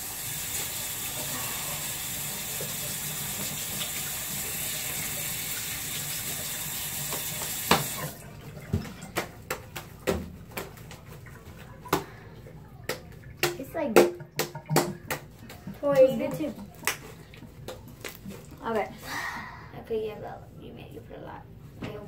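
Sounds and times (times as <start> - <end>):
water running from a tap: 0.0 - 9.6.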